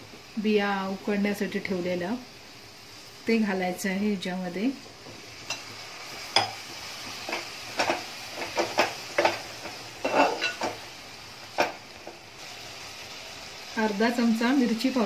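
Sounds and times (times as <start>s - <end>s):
faint sizzle: 0.0s - 15.0s
ladle scraping metal pot: 10.0s - 10.7s.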